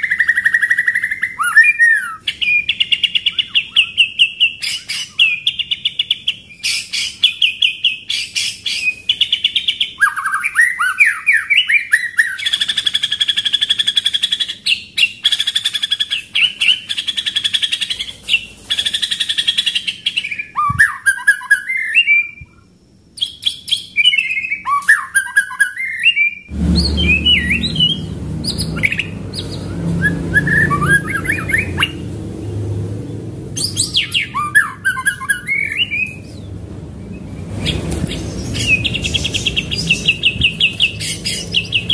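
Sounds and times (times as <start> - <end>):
songbird singing trills: 0.0 - 41.9
low background rumble: 26.5 - 41.9.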